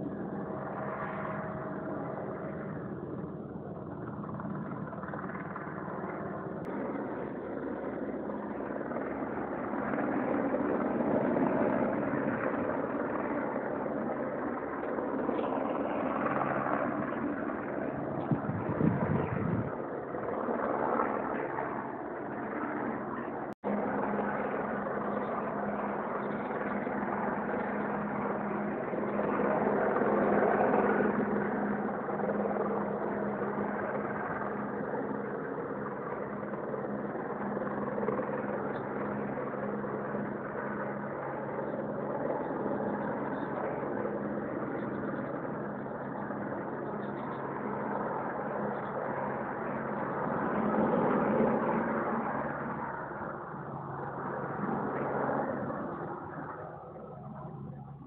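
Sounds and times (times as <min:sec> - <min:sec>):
helicopter rotor and engine drone: 0:00.0 - 0:58.0.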